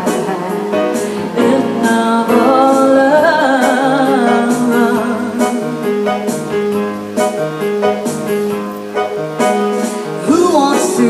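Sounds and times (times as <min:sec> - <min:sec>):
woman singing with vibrato: 0:00.0 - 0:05.9
piano accompaniment: 0:00.0 - 0:11.0.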